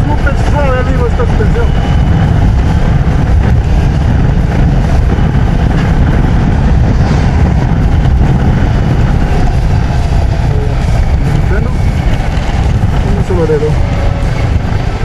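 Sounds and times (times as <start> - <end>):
motorcycle engine rumble: 0.0 - 15.0
wind and road noise: 0.0 - 15.0.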